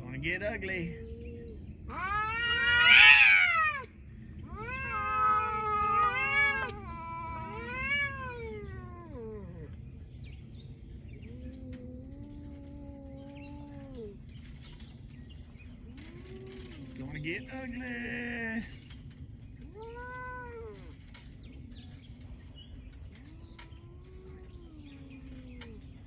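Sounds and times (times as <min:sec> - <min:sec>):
cats yowling: 0:00.3 - 0:10.0, 0:10.9 - 0:26.0
cat moaning low: 0:00.9 - 0:09.9, 0:11.1 - 0:14.6, 0:16.0 - 0:17.9, 0:19.6 - 0:21.4, 0:23.1 - 0:26.0.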